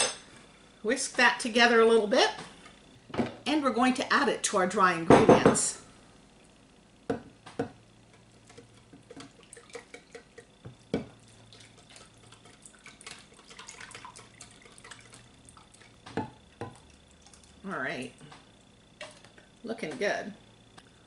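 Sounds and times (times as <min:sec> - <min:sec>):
liquid sloshing: 0:08.4 - 0:17.6.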